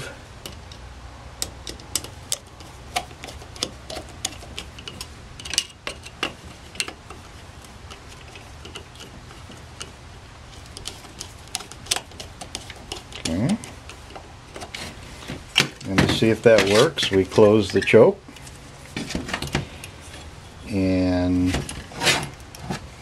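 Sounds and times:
screwdriver clicking on metal screw: 1.4 - 9.9.

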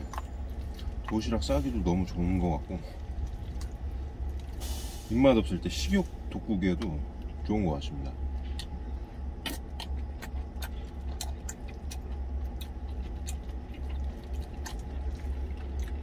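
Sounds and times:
chewing food: 0.0 - 4.7, 6.0 - 16.0
engine idling hum: 0.0 - 16.0
wet mouth clicks: 9.4 - 16.0.

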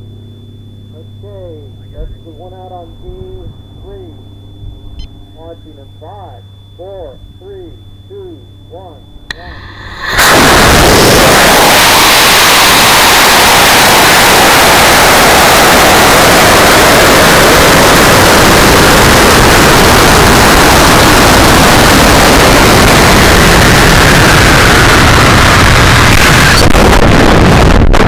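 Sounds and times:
air rushing past: 9.3 - 17.3
rocket motor roaring: 9.3 - 28.0.

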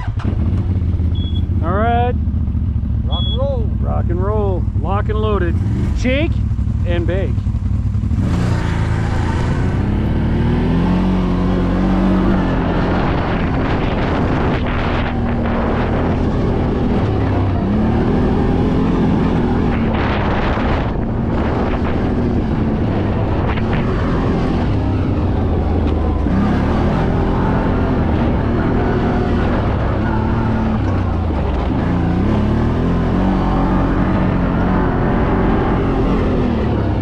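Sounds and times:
atv engine revving: 0.0 - 37.0
wind noise on microphone: 9.4 - 26.4.

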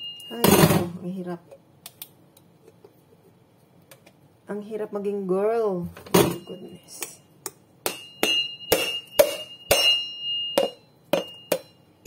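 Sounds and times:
metallic ring of blade: 7.9 - 11.8.

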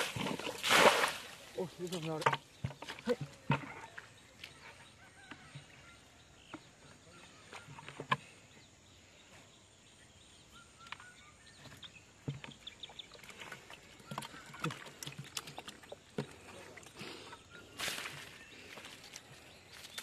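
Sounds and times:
water splashing: 0.0 - 3.2, 12.8 - 17.0.

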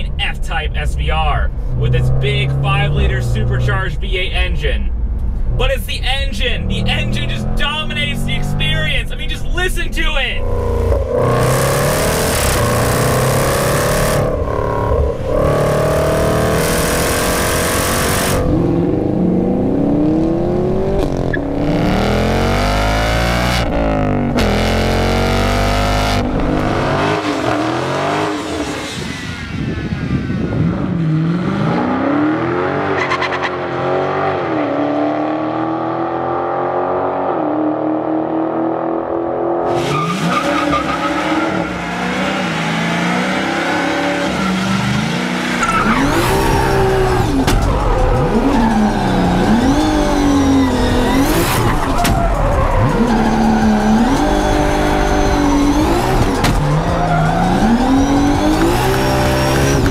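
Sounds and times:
car engines revving: 0.0 - 59.9
car engine revving hard: 10.4 - 59.9.

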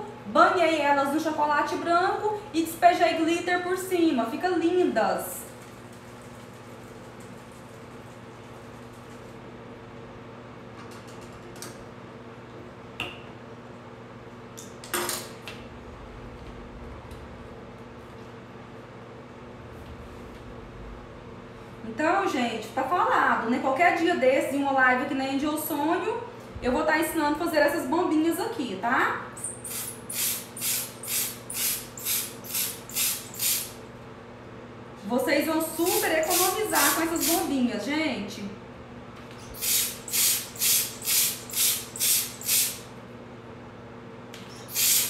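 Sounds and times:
steady low hum: 0.0 - 45.0
hand pump hissing strokes: 29.4 - 33.7, 35.8 - 37.5, 39.5 - 42.8, 44.5 - 45.0.

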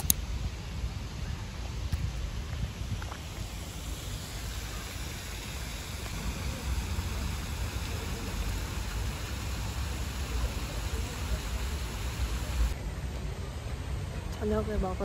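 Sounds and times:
wind rumble on microphone: 0.0 - 7.4
fountain water splashing: 3.0 - 12.8.

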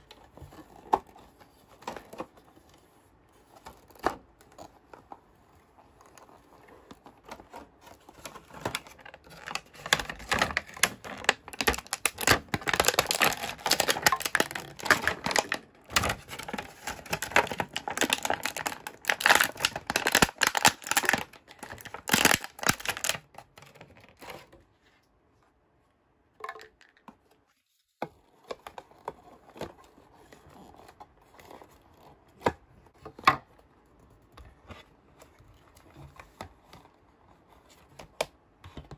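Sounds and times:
packaging crinkling and tearing: 5.9 - 24.5.

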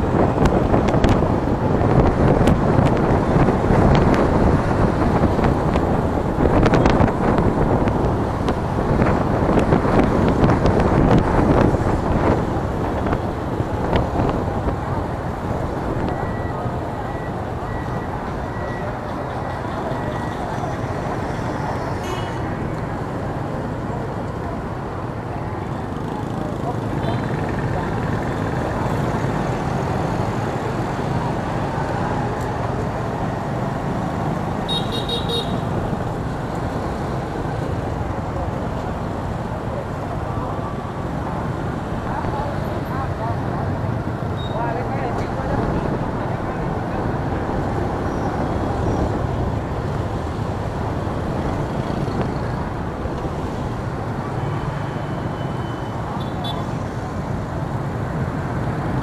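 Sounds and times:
motorbike road noise: 0.0 - 59.0
scooter traffic: 0.0 - 59.0
vehicle horn toot: 34.7 - 35.7.

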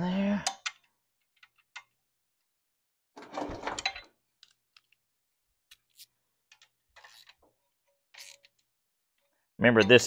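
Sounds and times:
tools clattering: 3.2 - 5.0, 5.7 - 10.0.

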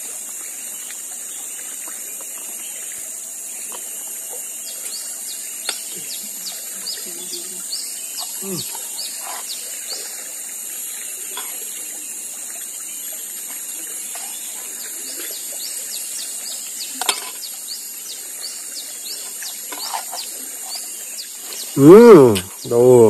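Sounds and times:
high insect drone: 0.0 - 23.0.

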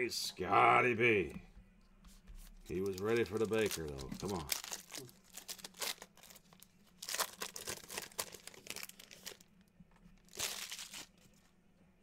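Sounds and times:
foil wrapper crinkling and tearing: 2.7 - 9.6, 10.2 - 11.3.

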